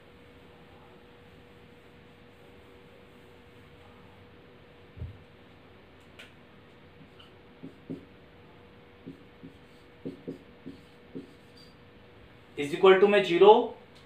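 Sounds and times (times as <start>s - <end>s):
faint steady hum: 0.0s - 14.0s
marker writing on a whiteboard: 7.0s - 8.2s, 9.0s - 11.8s.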